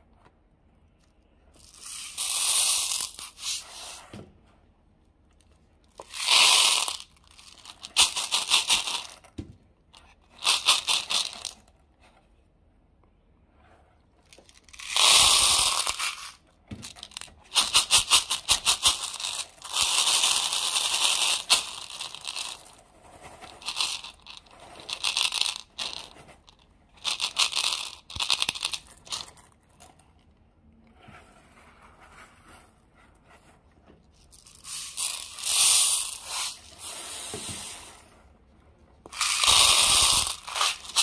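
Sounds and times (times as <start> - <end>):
plastic crinkling and crackling: 39.0 - 41.0.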